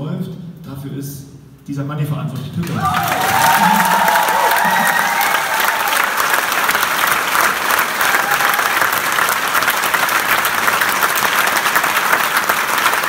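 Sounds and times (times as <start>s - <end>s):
crowd clapping: 2.6s - 13.0s.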